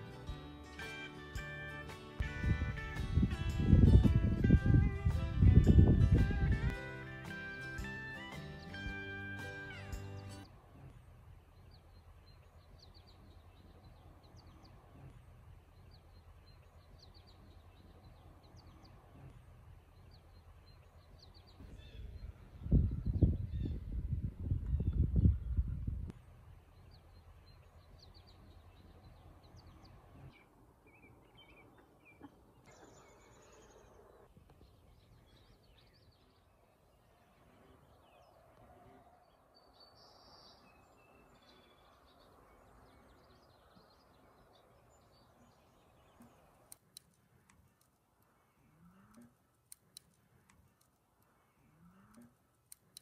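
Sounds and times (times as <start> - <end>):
bird chirps: 26.7 - 38.4.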